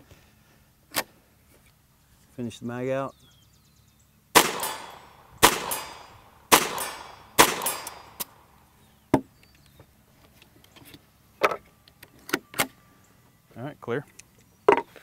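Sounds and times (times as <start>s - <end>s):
pistol shots: 4.4s - 8.6s.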